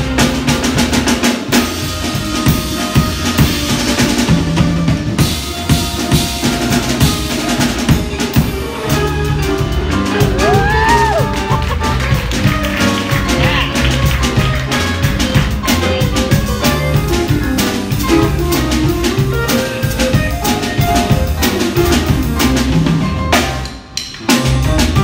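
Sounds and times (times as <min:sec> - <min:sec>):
drum kit: 0:00.0 - 0:25.0
upright double bass: 0:00.0 - 0:25.0.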